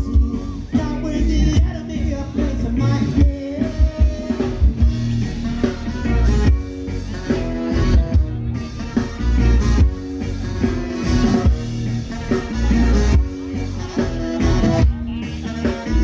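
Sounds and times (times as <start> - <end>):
person singing: 0.0 - 4.8
live band playing: 0.0 - 16.0.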